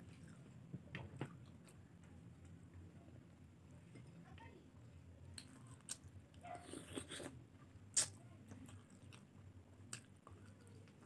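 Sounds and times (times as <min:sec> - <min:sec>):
person chewing: 0:05.4 - 0:11.0.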